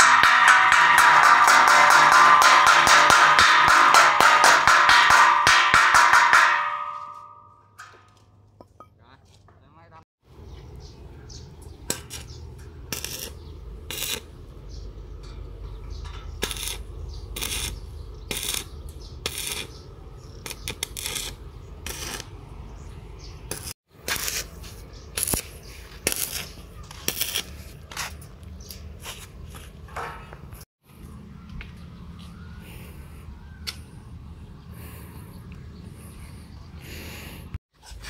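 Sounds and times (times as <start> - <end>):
sharp metallic taps: 0.0 - 8.8
arc welding crackling: 12.9 - 14.4, 16.4 - 19.8, 20.4 - 22.3, 23.5 - 28.2.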